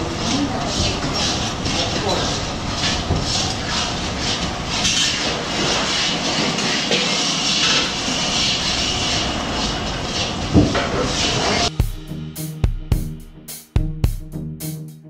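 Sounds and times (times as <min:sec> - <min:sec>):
flatbreads frying on griddle: 0:00.2 - 0:11.6.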